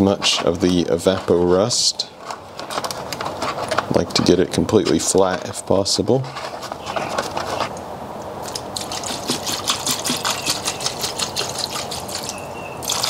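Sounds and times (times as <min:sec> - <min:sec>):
liquid pouring and splashing into a tub: 0:08.4 - 0:13.0.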